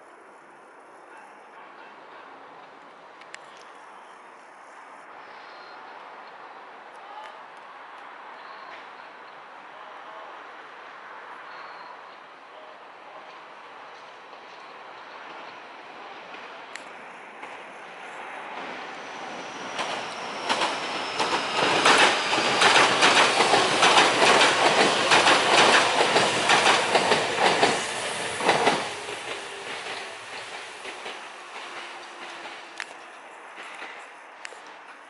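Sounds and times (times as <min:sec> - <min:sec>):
train wheels clattering: 0:18.6 - 0:34.8.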